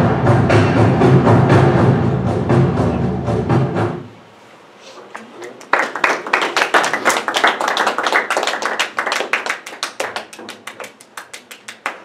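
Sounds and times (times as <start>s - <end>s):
people clapping: 5.0s - 12.0s.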